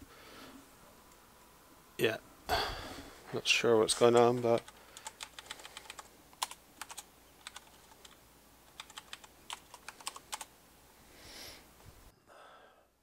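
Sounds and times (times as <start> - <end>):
typing on a keyboard: 3.9 - 10.5.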